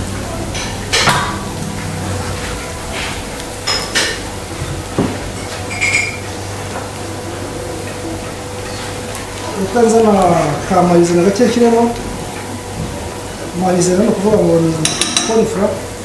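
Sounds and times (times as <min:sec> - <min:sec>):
food frying in oil: 0:00.0 - 0:16.0
metal pans and utensils clinking: 0:00.4 - 0:07.0, 0:14.7 - 0:15.5.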